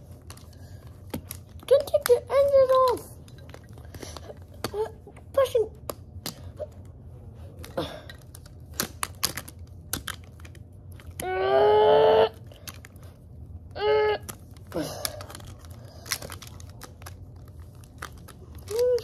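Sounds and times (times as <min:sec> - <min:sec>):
plastic toys clicking and knocking: 0:00.3 - 0:04.8, 0:07.6 - 0:11.2, 0:14.3 - 0:19.0.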